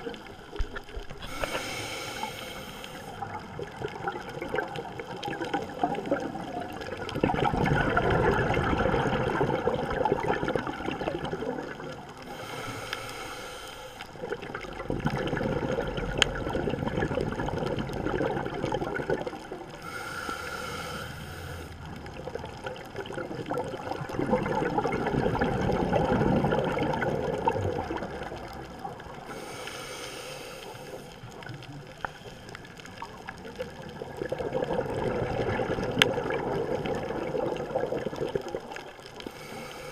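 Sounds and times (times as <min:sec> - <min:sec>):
regulator inhale hiss: 0:00.3 - 0:03.2, 0:12.2 - 0:14.2, 0:19.8 - 0:21.8, 0:29.3 - 0:31.4, 0:39.2 - 0:39.9
exhaled bubbles rushing: 0:03.1 - 0:12.3, 0:14.1 - 0:19.8, 0:21.8 - 0:29.3, 0:33.0 - 0:39.2.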